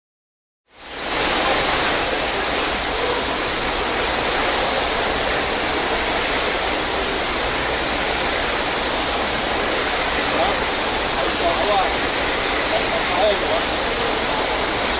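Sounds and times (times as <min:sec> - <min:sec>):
water rushing: 0:00.7 - 0:14.9.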